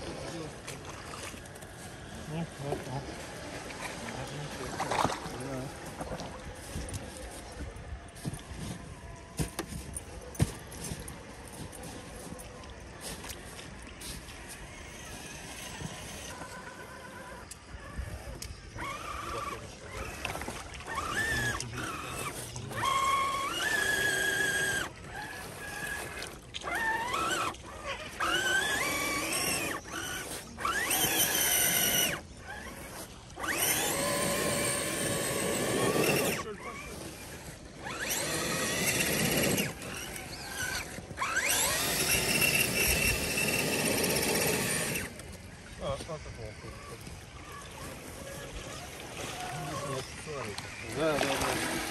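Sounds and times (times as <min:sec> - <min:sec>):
toy truck electric motor whining: 0:14.0 - 0:51.9.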